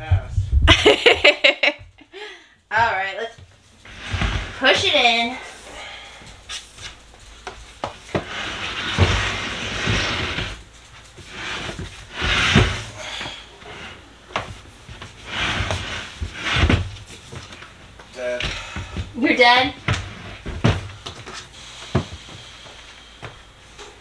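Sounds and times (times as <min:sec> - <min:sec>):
drawer unit scraping across floor: 0:03.8 - 0:05.5, 0:08.1 - 0:13.0, 0:13.6 - 0:17.0, 0:19.7 - 0:20.9
furniture knocks and thuds: 0:07.8 - 0:13.4, 0:14.3 - 0:17.4, 0:18.4 - 0:22.4.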